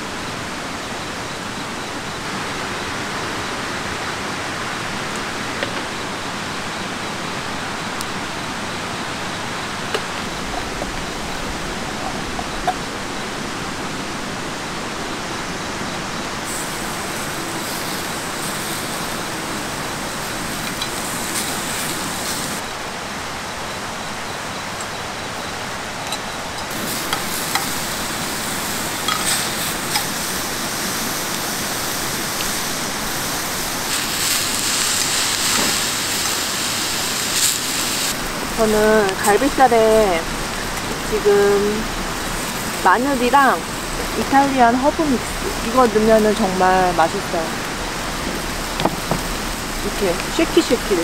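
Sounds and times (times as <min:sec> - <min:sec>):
meat sizzling on a grill pan: 0:16.5 - 0:22.6, 0:26.7 - 0:51.0.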